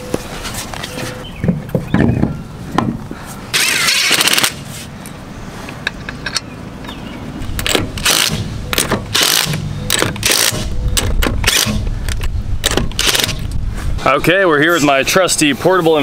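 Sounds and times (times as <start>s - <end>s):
impact tool running lug nuts: 3.5s - 4.6s, 7.6s - 11.8s, 12.6s - 13.4s.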